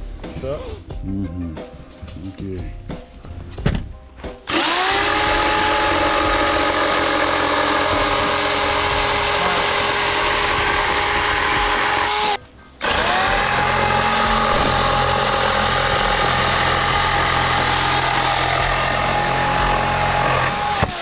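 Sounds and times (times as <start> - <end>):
power tool motor running: 4.5 - 21.0.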